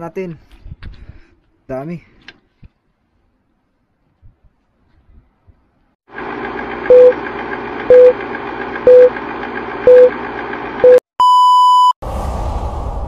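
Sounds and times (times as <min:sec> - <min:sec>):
film projector whirring: 0:06.1 - 0:10.8
long high beep: 0:07.9 - 0:08.1, 0:08.9 - 0:09.1, 0:09.9 - 0:10.1, 0:10.8 - 0:12.0
short beeps: 0:08.9 - 0:09.1, 0:09.9 - 0:10.1, 0:10.8 - 0:11.9
low rumble: 0:12.0 - 0:13.0.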